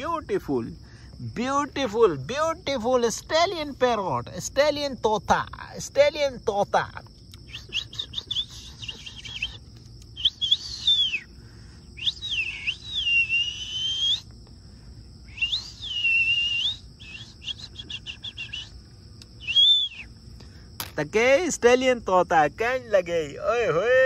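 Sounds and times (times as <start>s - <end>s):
bird-like whistling: 7.4s - 11.4s, 12.0s - 14.3s, 15.2s - 18.8s, 19.4s - 20.1s.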